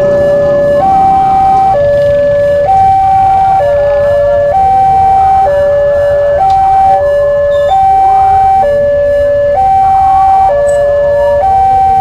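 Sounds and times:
level crossing two-tone alarm: 0.0 - 12.0.

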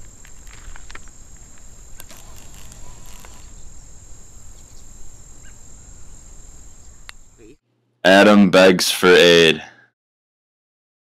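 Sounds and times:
crickets trilling: 0.0 - 7.6.

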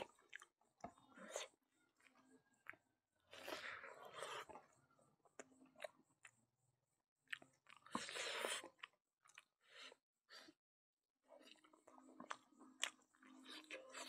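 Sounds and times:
man chewing and mouth smacks: 0.0 - 4.7, 7.2 - 10.0, 11.3 - 14.0.

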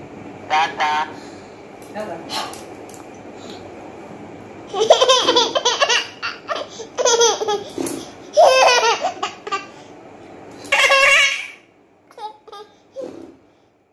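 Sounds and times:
toddler girl laughing: 4.7 - 9.7, 10.7 - 13.1.

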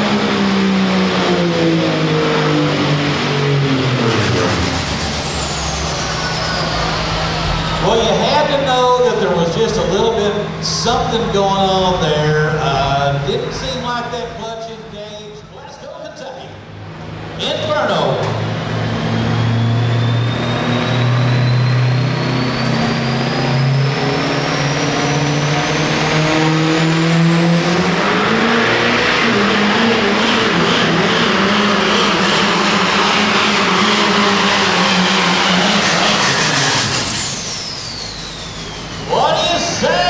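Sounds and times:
pickup truck engine running hard: 0.0 - 40.0
turbo whistle: 4.7 - 8.3, 18.8 - 25.3, 31.6 - 40.0.

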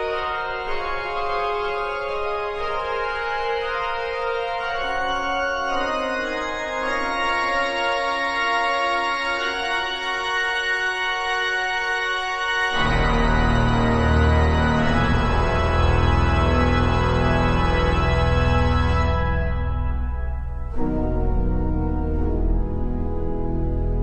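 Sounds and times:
organ playing slow chords: 0.0 - 24.0.

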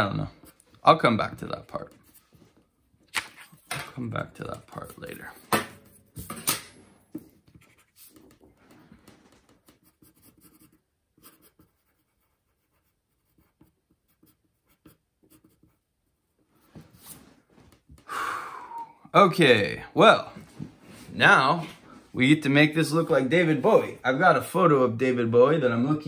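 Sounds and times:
pencil scratching on paper: 7.5 - 17.2.

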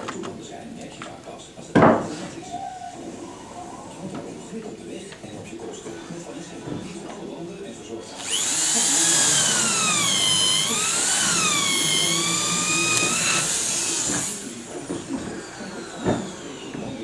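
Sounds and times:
drill whining under load: 8.0 - 17.0.

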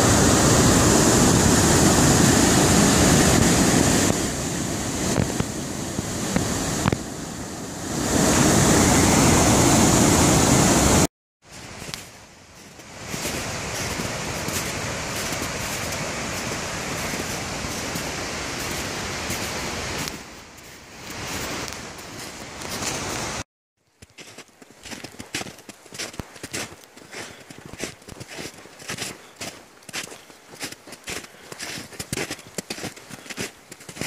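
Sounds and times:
waterfall rushing: 0.0 - 11.1, 12.9 - 20.1.

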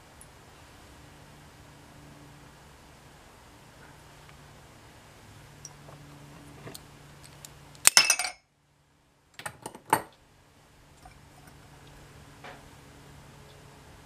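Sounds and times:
metal bowl clinking on ceramic cup: 7.9 - 8.4.

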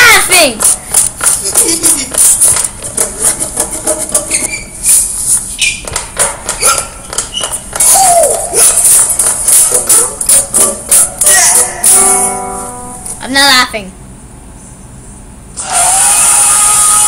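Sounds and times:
jingling percussive hits: 8.7 - 13.0.

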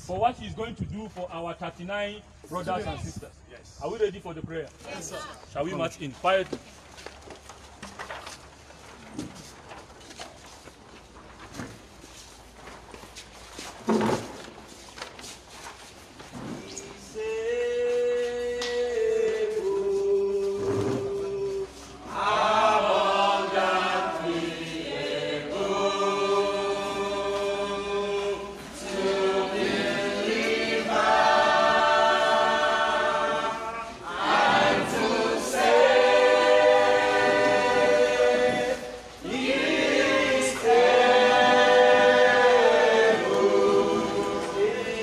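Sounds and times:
group singing without instruments: 16.6 - 45.0.

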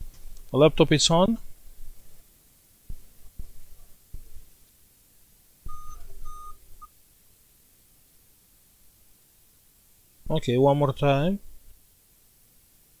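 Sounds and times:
computer beeps: 5.7 - 6.6.

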